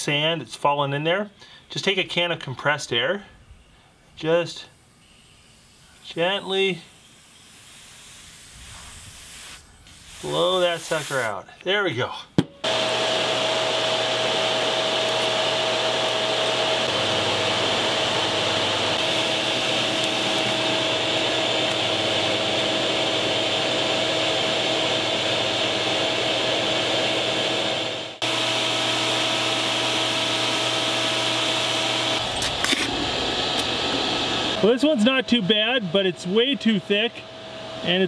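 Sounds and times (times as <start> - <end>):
electric air blower running: 4.7 - 11.3, 12.6 - 38.0.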